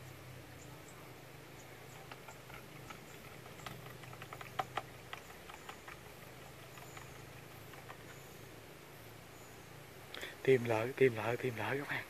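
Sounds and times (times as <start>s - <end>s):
low steady hum: 0.0s - 12.0s
faint small clicks and ticks: 1.9s - 8.3s.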